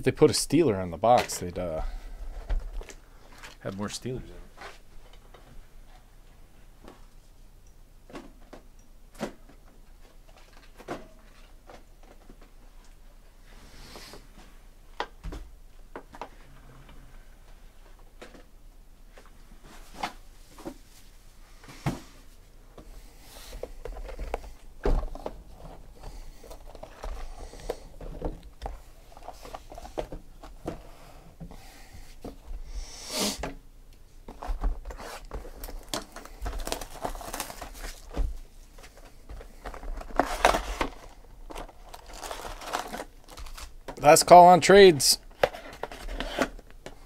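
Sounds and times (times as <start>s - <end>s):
packaging rustling and crinkling: 23.5s - 30.8s, 34.3s - 44.0s
packaging tearing: 34.9s - 38.1s, 40.1s - 43.8s.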